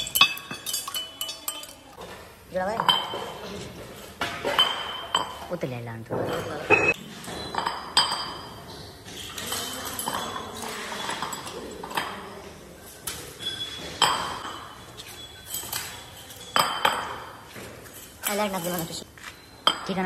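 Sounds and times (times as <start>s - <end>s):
metal wheel hubs clinking: 0.0s - 2.0s.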